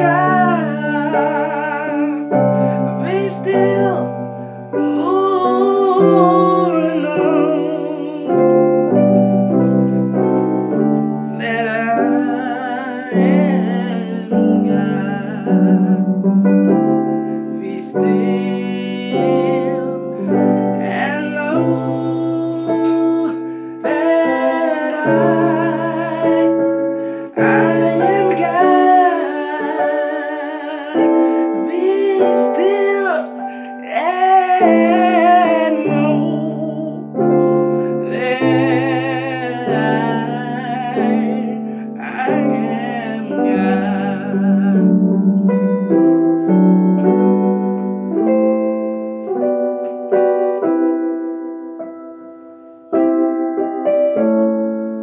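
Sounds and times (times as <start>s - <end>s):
person singing worship song: 0.0s - 49.4s
electric keyboard chords: 0.0s - 55.0s.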